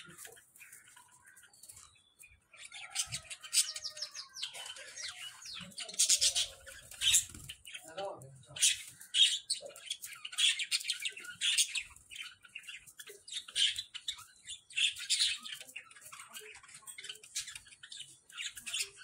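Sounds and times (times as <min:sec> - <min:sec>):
budgerigars chirping: 0:00.0 - 0:19.0.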